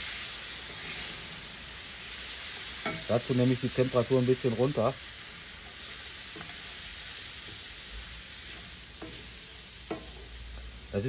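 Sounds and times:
vegetables sizzling in oil: 0:00.0 - 0:11.0
spatula stirring: 0:08.4 - 0:10.4.

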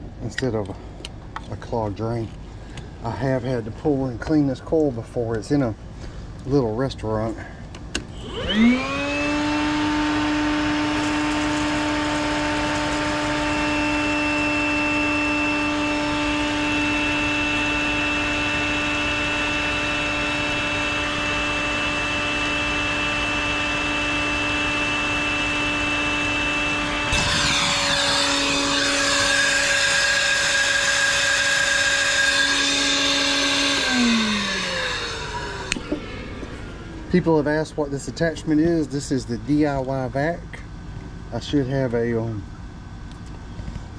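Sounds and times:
wet dry vacuum whining: 0:06.5 - 0:40.7.

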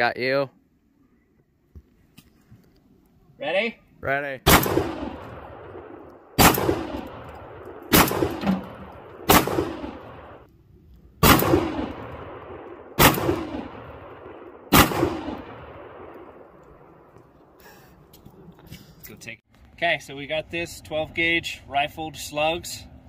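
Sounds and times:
shotgun blasts echoing: 0:04.4 - 0:10.5, 0:11.2 - 0:17.1.

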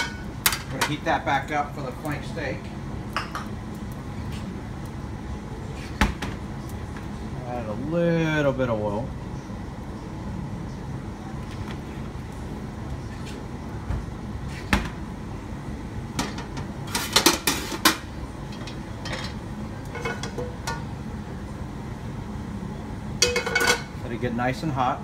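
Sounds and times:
wok and lid clanking: 0:23.2 - 0:23.9.

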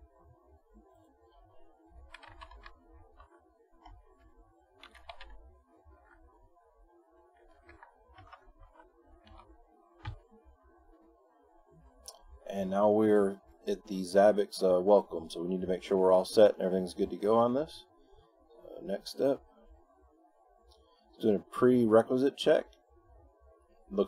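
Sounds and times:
computer keyboard typing: 0:02.1 - 0:06.2, 0:07.4 - 0:10.2.

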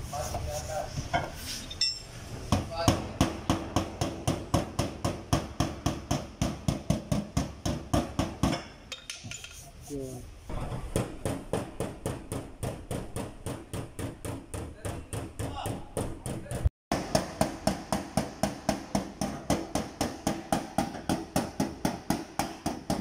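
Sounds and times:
hammer striking sheet metal: 0:10.5 - 0:23.0.

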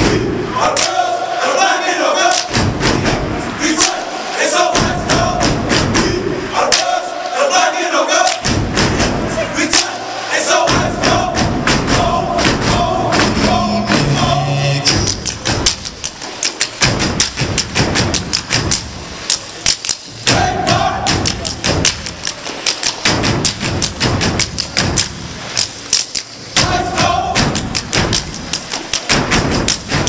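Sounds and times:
people shouting: 0:00.0 - 0:14.5, 0:20.3 - 0:21.5, 0:26.6 - 0:27.6
hand claps: 0:00.7 - 0:01.0, 0:02.2 - 0:02.6, 0:03.7 - 0:04.1, 0:06.7 - 0:07.0, 0:08.2 - 0:08.6, 0:09.7 - 0:10.0, 0:15.0 - 0:20.4, 0:21.1 - 0:26.8, 0:27.4 - 0:30.0.

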